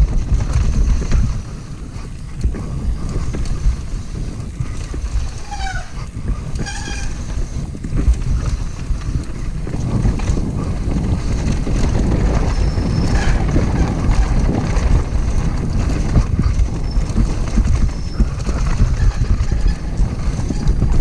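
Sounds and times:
bike knocks and rattles: 0:00.0 - 0:21.0
tyres on loose dirt: 0:00.0 - 0:21.0
wind rumble on microphone: 0:00.0 - 0:21.0.

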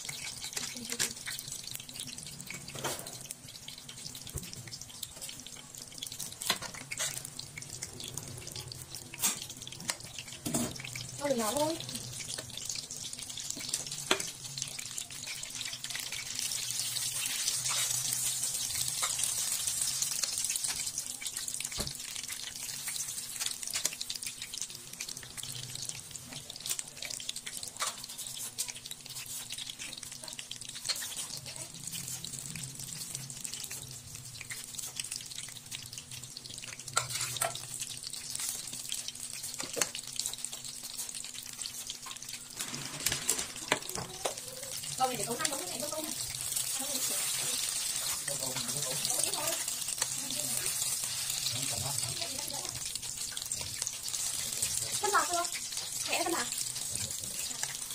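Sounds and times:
rice paper rustling and crackling: 0:42.5 - 0:44.2.

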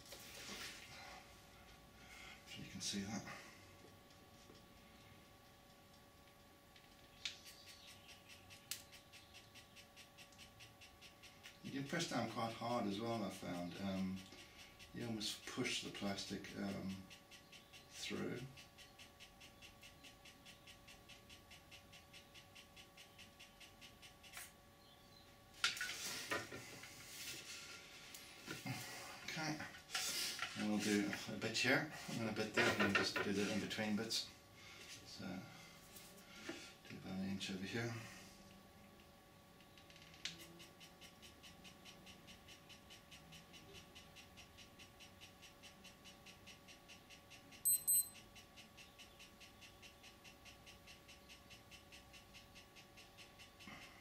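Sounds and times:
pen motor humming and ticking: 0:04.1 - 0:12.3, 0:13.1 - 0:25.0, 0:39.6 - 0:54.0
pen motor whining and ticking: 0:07.2 - 0:11.7, 0:16.0 - 0:24.5
short high beeps: 0:47.7 - 0:48.2.

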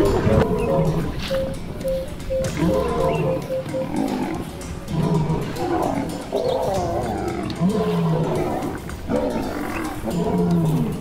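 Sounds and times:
lions growling and snarling: 0:00.0 - 0:01.3, 0:02.5 - 0:11.0.

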